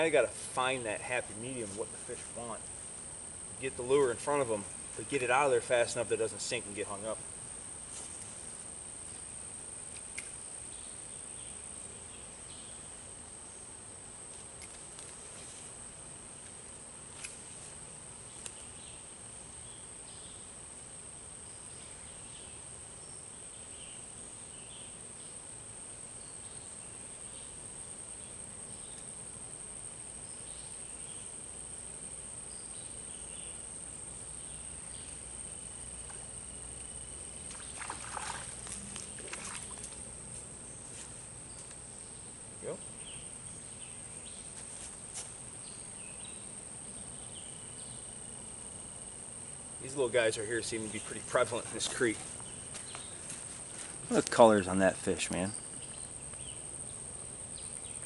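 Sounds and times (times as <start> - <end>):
insects droning: 0.0 - 58.0
water splash: 37.5 - 40.0.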